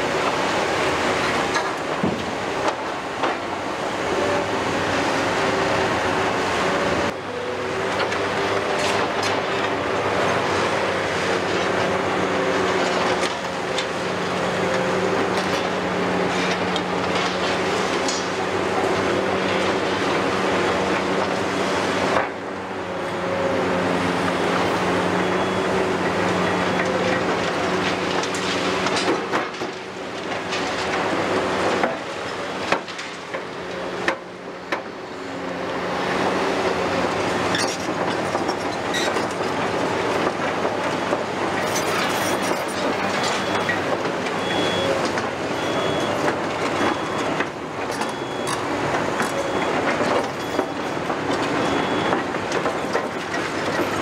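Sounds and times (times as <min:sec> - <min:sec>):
diesel engines under load: 0:00.0 - 0:54.0
metallic track clatter: 0:37.5 - 0:44.4
knocks of steel and rubble: 0:37.6 - 0:54.0.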